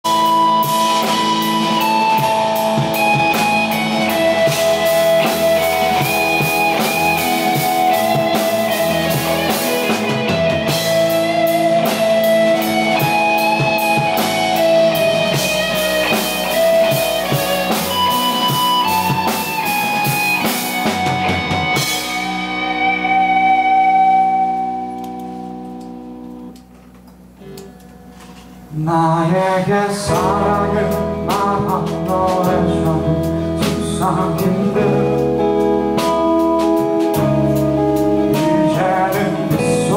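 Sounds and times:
rock band playing live: 0.0 - 28.7, 29.6 - 39.9
held guitar chord ringing: 0.1 - 26.6.

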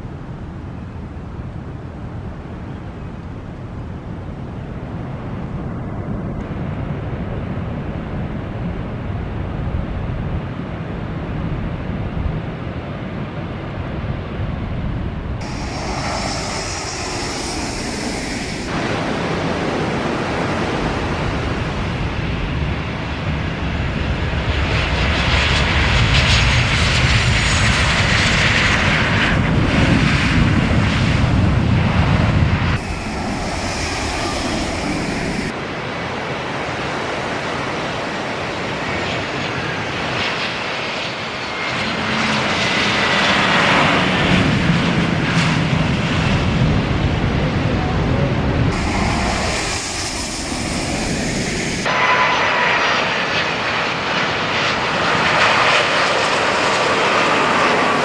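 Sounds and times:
jet engines roaring: 15.2 - 58.0.

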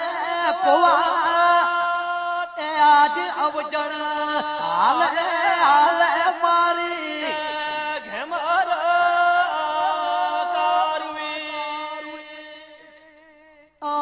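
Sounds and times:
person singing ornamented phrases: 0.0 - 14.0.

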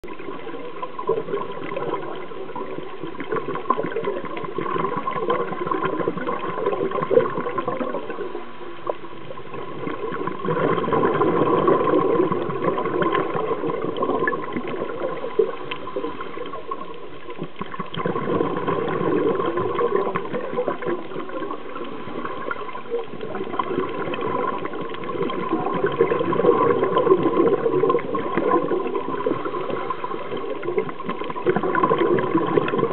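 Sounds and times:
bubbles gurgling underwater: 0.0 - 32.9.

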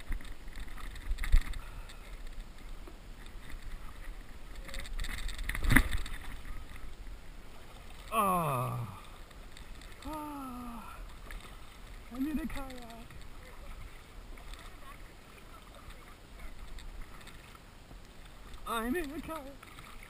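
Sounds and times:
paddle strokes in water: 0.0 - 20.0
person speaking: 8.1 - 9.1, 10.0 - 11.0, 12.1 - 13.1, 18.7 - 19.6.

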